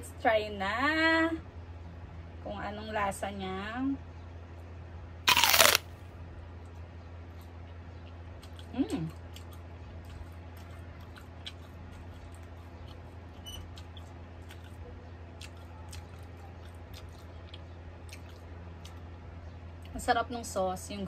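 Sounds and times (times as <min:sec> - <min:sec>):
steady low hum: 0:00.0 - 0:21.0
faint chewing: 0:05.3 - 0:05.8, 0:06.6 - 0:20.0.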